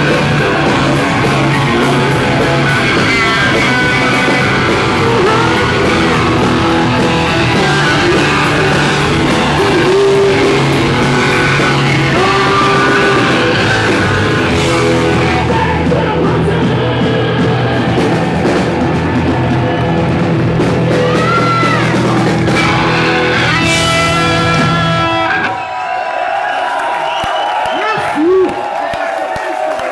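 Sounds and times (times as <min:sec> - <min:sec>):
loud hard rock band: 0:00.0 - 0:28.8
man shouting singing: 0:02.7 - 0:17.9, 0:20.9 - 0:23.7.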